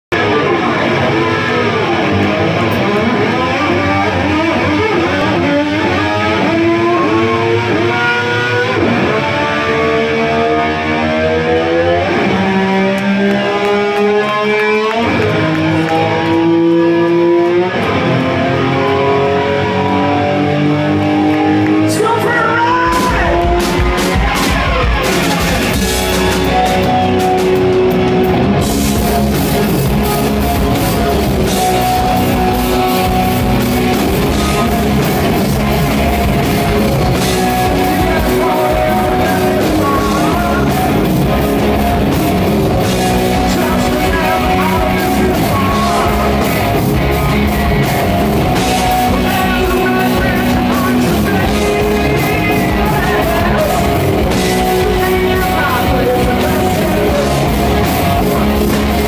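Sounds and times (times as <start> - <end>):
live rock band playing loud: 0.0 - 59.0
lead singer singing: 30.1 - 59.0.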